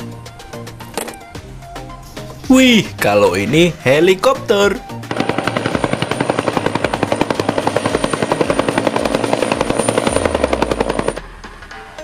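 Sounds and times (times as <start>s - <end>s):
helicopter rotor chopping: 3.3s - 11.4s
high-pitched helicopter whine: 5.0s - 11.4s.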